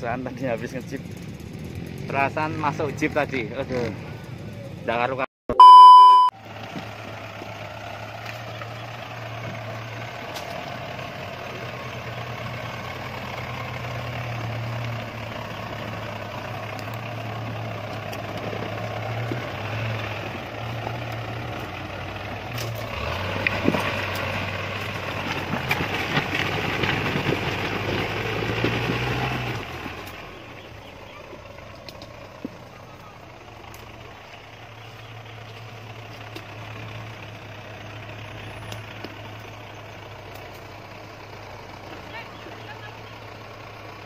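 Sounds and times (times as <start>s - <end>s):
off-road vehicle engine humming: 0.0s - 44.0s
tyres crunching on loose rocks: 16.7s - 36.8s.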